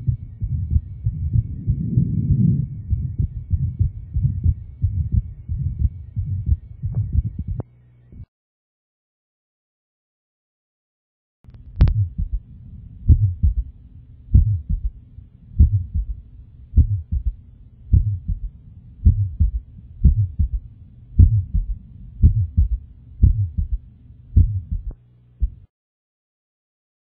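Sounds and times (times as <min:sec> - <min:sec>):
heartbeat thuds: 0:00.0 - 0:07.6, 0:11.8 - 0:12.5, 0:13.1 - 0:13.7, 0:14.3 - 0:15.0, 0:15.6 - 0:16.2, 0:16.8 - 0:25.6
steady low hum: 0:00.0 - 0:08.3, 0:11.5 - 0:25.7.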